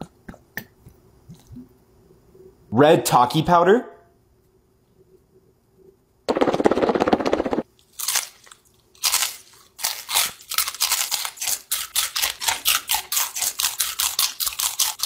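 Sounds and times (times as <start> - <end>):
crunchy chewing of chips: 7.7 - 15.0.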